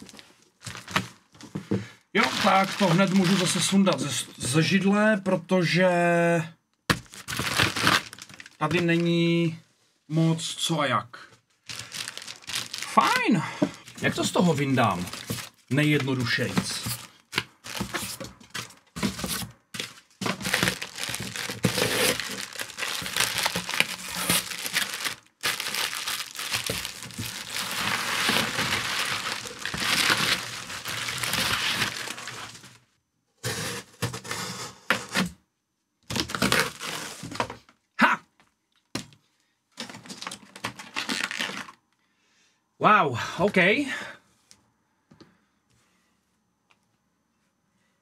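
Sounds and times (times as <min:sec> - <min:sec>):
plastic packing material crinkling: 0:00.0 - 0:01.4, 0:02.2 - 0:04.3, 0:07.0 - 0:09.2, 0:11.6 - 0:32.8, 0:36.1 - 0:37.4, 0:39.8 - 0:41.8.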